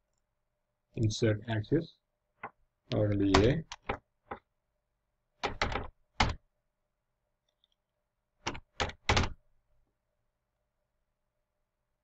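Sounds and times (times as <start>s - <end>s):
keyboard typing: 2.4s - 4.5s, 5.4s - 6.4s, 8.4s - 9.4s.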